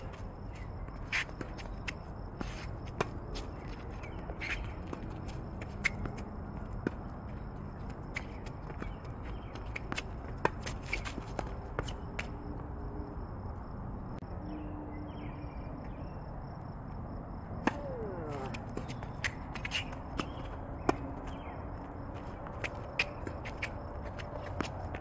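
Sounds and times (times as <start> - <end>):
tennis balls bouncing on court: 0.0 - 12.8, 17.0 - 25.0
tennis balls hit by rackets: 17.5 - 21.5.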